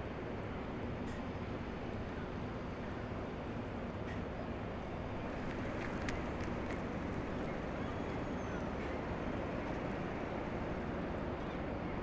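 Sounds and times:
harbour waterside rumble and hiss: 0.0 - 12.0
faint clicks: 5.4 - 7.7.

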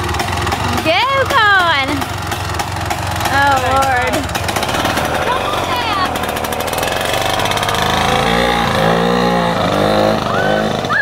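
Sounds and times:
engine revving under throttle: 0.0 - 11.0.

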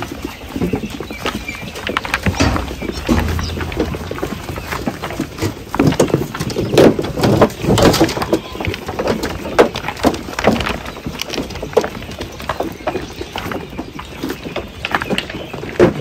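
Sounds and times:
sheep crunching feed in metal trough: 0.0 - 16.0
shuffling hooves: 0.3 - 5.3.

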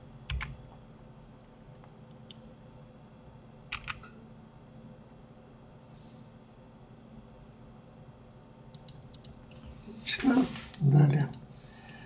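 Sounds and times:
computer keys and mouse clicks: 0.3 - 0.6, 3.7 - 4.2, 8.7 - 9.6.

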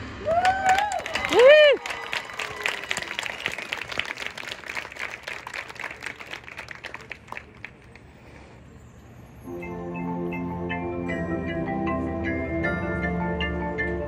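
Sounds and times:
audience applause: 0.2 - 8.1.

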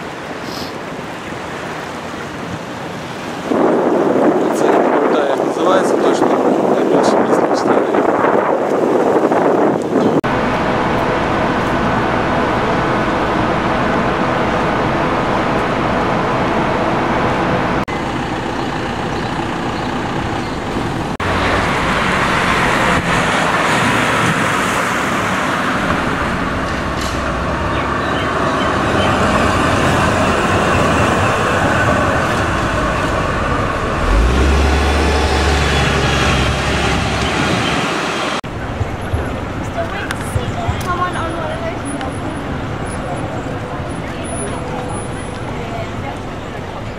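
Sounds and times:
passing vehicles traffic: 9.9 - 46.9
deep rumble of passing vehicle: 10.2 - 46.9.

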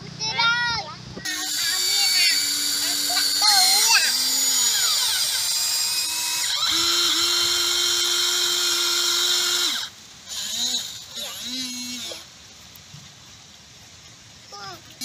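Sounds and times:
electric motors whining: 1.2 - 12.3.

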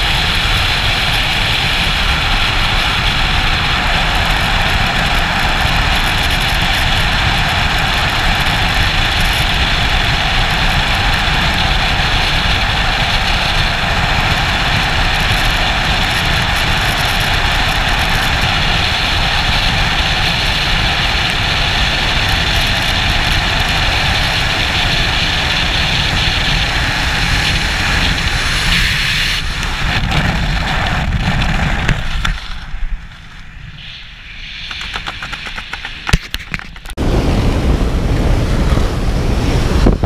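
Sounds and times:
freefall wind rushing: 0.0 - 36.2, 36.8 - 40.0
sharp clicks: 34.6 - 37.0.

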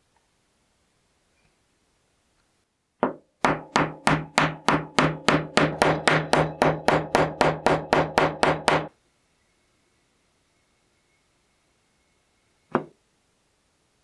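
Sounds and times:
hammer striking metal: 3.0 - 8.9.

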